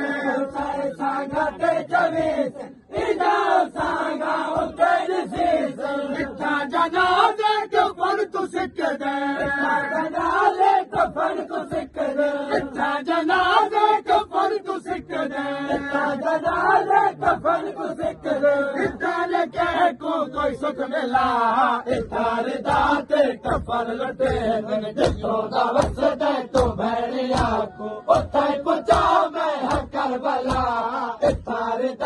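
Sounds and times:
men chanting a lament: 0.0s - 32.0s
chest-beating slaps: 21.9s - 31.6s.

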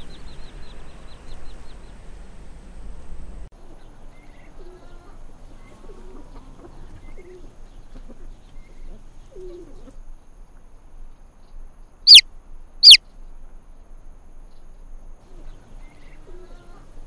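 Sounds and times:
hen clucking softly: 5.8s - 10.0s.

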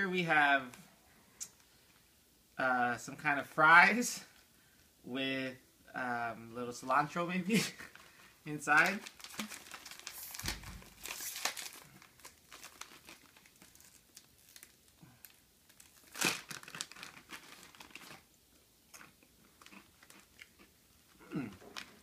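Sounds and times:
plastic snack bag crinkling and tearing: 7.7s - 22.0s.

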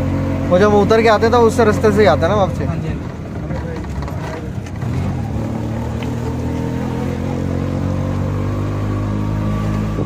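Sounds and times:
auto-rickshaw engine droning: 0.0s - 10.0s.

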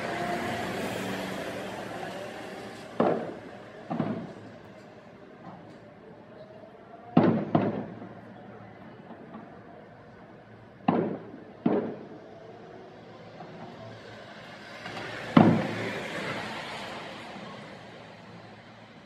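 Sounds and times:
fireworks shells booming: 2.6s - 4.7s, 7.2s - 8.4s, 10.8s - 12.2s, 14.8s - 16.0s.

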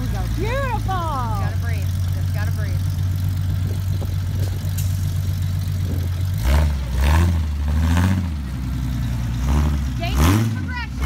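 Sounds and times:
buggy engine revving: 0.0s - 11.0s.

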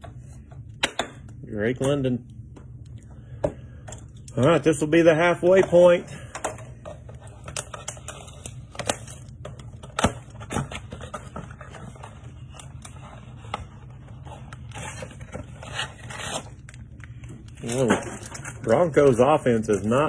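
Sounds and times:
plastic shrink wrap crinkling: 14.6s - 20.0s.

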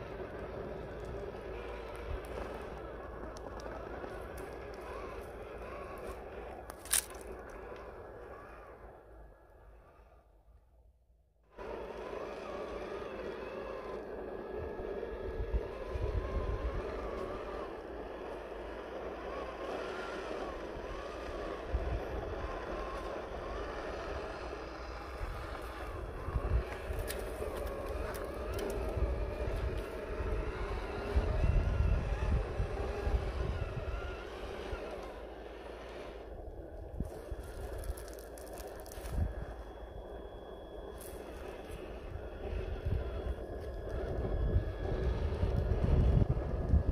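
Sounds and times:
electric motor whining: 0.0s - 10.3s, 11.5s - 46.9s
low rumbles: 0.0s - 10.4s.

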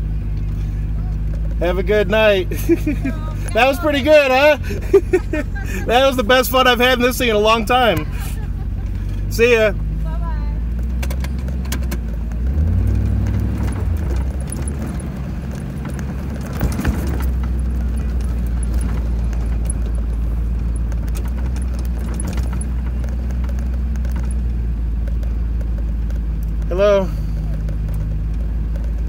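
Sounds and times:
engine running at low revs: 0.0s - 29.0s
light rattling and clicking: 10.7s - 29.0s
knocks from a bump: 13.2s - 20.0s.

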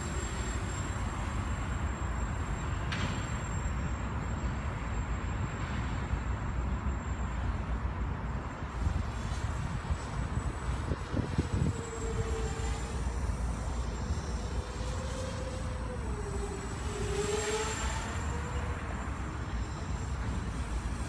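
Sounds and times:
distant quadcopter buzz: 0.0s - 21.0s
wind on microphone: 8.7s - 18.9s.

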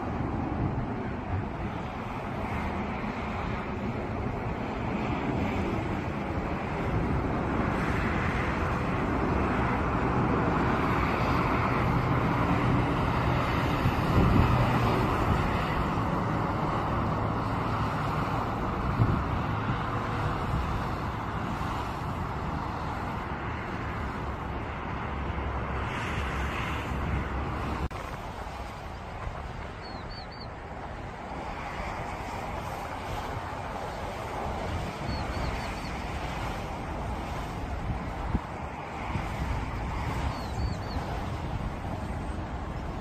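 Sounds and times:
jet engine rush and rumble: 0.0s - 43.0s
wind gusts on microphone: 0.0s - 43.0s.

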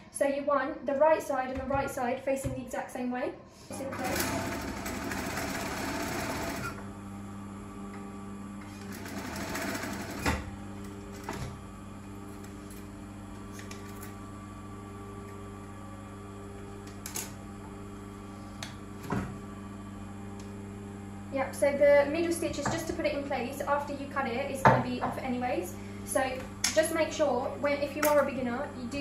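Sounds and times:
steady machine hum: 0.0s - 29.0s
sewing machine stitching: 3.7s - 6.8s, 8.8s - 10.5s.

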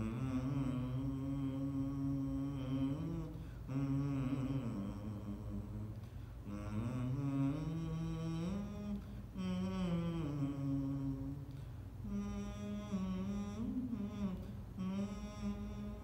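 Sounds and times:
man chanting a devotional melody: 0.0s - 16.0s
steady low hum: 0.0s - 16.0s.

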